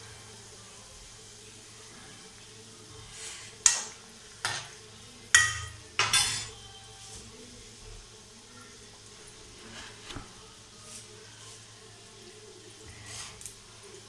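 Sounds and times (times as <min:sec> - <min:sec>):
oil sizzling: 0:00.0 - 0:14.0
metal spoon clinking on cookware: 0:03.6 - 0:06.6.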